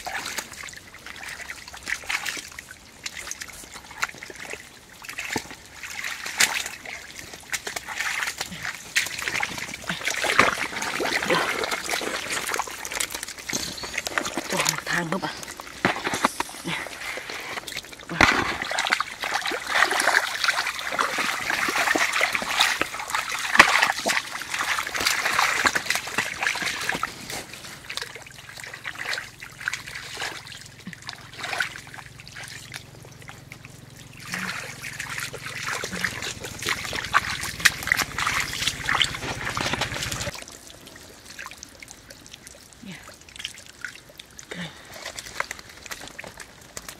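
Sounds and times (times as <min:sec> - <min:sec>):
muddy water splashing: 0:00.0 - 0:46.9.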